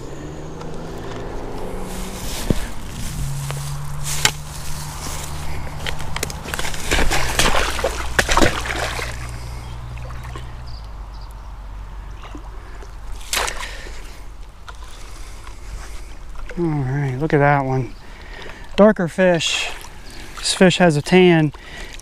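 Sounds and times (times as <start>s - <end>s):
fish thrashing in water: 1.7s - 10.6s, 12.2s - 15.7s.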